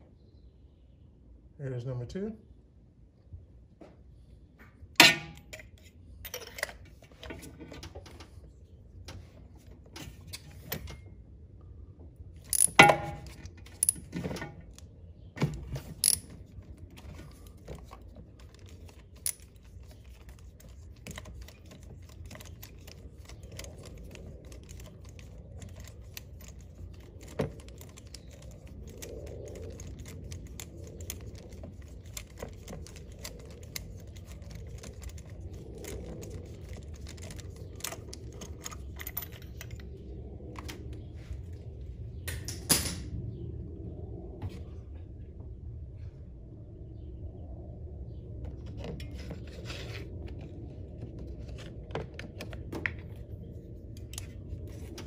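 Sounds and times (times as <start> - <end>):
metal tools clinking: 12.5 - 14.6, 15.9 - 16.5, 18.4 - 19.7.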